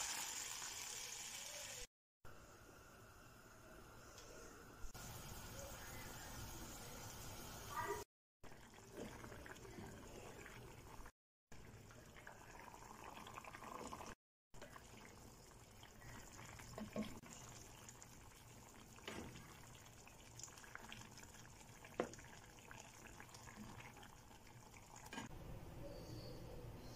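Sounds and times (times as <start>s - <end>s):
stew bubbling in a pan: 7.9s - 25.3s.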